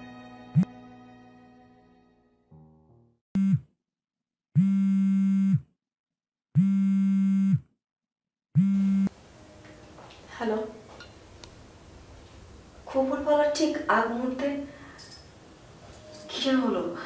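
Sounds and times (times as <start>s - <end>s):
phone vibrating on stone floor: 8.6s - 9.1s.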